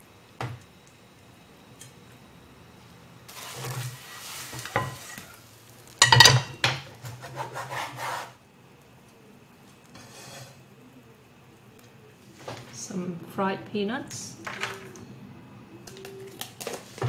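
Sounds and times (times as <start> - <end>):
cookware clattering: 6.0 - 6.8
rubbing and scraping: 7.0 - 8.4.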